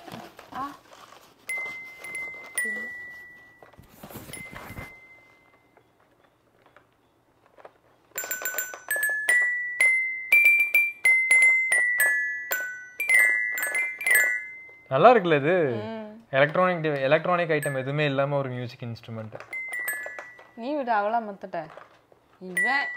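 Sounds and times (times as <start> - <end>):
handling rustle: 0.0 - 9.2
toy piano notes: 1.5 - 5.8, 8.1 - 15.2, 17.5 - 18.3, 19.5 - 21.2, 22.4 - 22.9.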